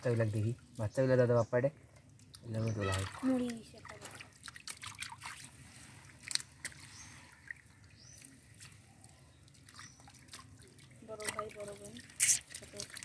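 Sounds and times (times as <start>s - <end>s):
water splashing and trickling: 0.0s - 13.0s
sharp splash: 2.8s - 8.8s, 9.6s - 13.0s.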